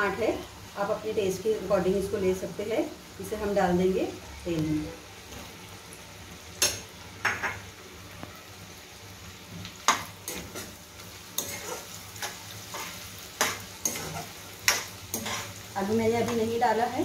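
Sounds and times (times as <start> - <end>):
onions sizzling in hot oil: 0.0 - 17.0.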